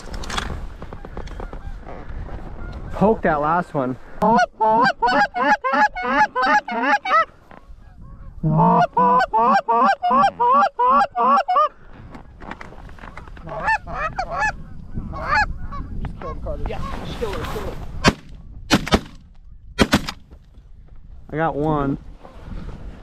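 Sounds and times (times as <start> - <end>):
goose honking: 4.2 - 11.7.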